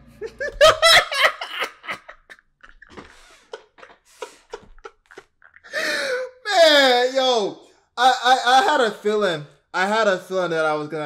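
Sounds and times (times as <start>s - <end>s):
man laughing hard: 0.2s - 2.4s, 3.0s - 6.2s.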